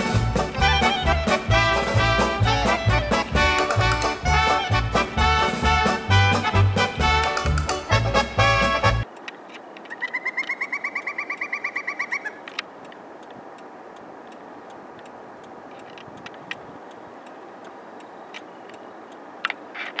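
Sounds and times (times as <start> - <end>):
woodpecker calling: 6.4 - 8.0, 9.8 - 12.6.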